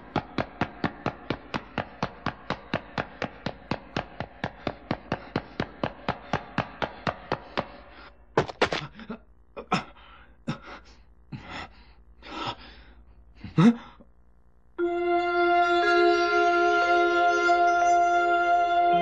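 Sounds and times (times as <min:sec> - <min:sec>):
rapid regular taps: 0:00.0 - 0:08.9
music with sustained tones: 0:14.8 - 0:19.0.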